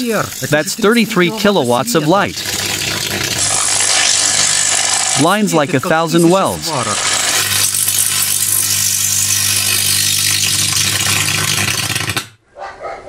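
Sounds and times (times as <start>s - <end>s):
arc lamp hissing buzz: 2.3s - 12.2s.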